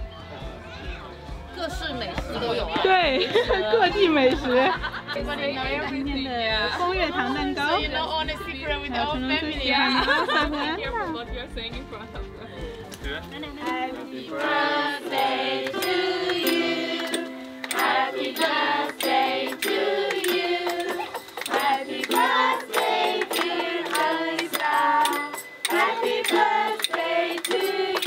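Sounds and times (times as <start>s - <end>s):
hand claps: 12.9s - 28.0s
group singing: 13.6s - 28.0s.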